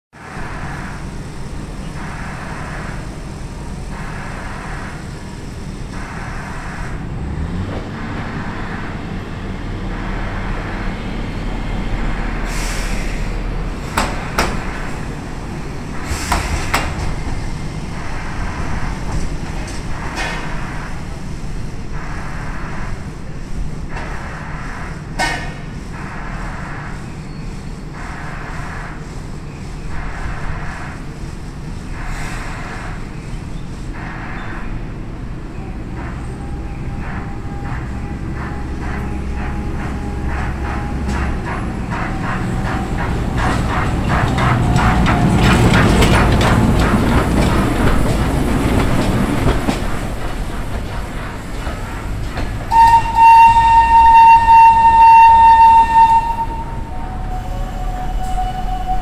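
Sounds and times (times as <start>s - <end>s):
streetcar rumbling past: 0.1s - 59.0s
wheels clacking on rail joints: 0.3s - 59.0s
wheel squeal: 52.7s - 59.0s.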